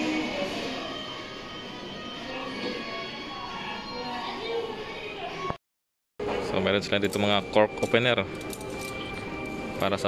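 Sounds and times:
background music: 0:06.5 - 0:10.0.

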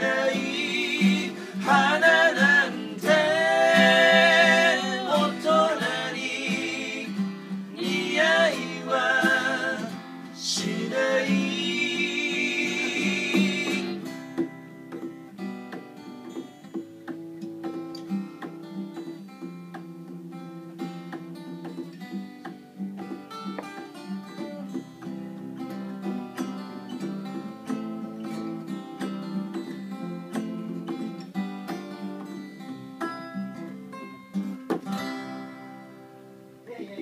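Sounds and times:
voices singing: 0:00.0 - 0:14.7
acoustic guitars: 0:00.0 - 0:37.0.

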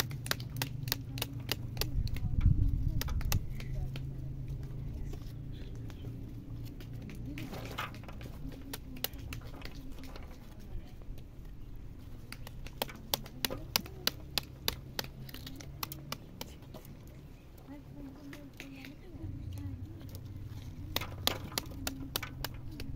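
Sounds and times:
stick tapping pomegranate: 0:00.0 - 0:04.1, 0:08.0 - 0:10.4, 0:12.1 - 0:16.9, 0:20.8 - 0:22.9.

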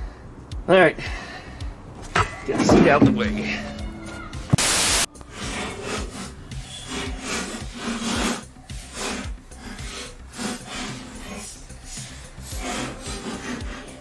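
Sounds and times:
wire brush scraping steel: 0:04.6 - 0:14.0.

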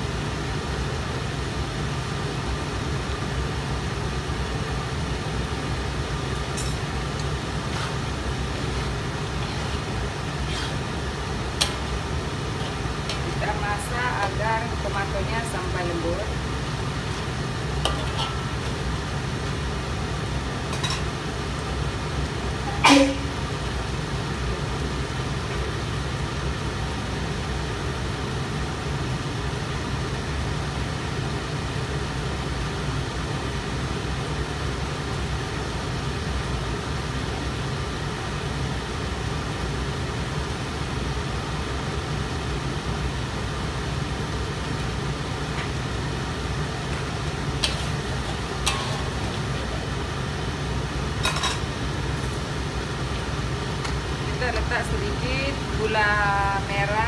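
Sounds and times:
food simmering in wok: 0:00.0 - 0:14.9, 0:16.3 - 0:54.3
gas stove hissing and humming: 0:00.0 - 0:57.0
kitchenware clinking: 0:06.4 - 0:06.8, 0:17.8 - 0:18.6, 0:20.7 - 0:21.1, 0:47.6 - 0:49.5, 0:51.2 - 0:52.5.

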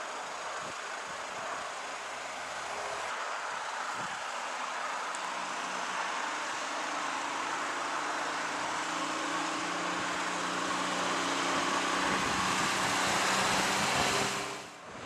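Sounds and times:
aircraft engines droning: 0:00.0 - 0:15.0.

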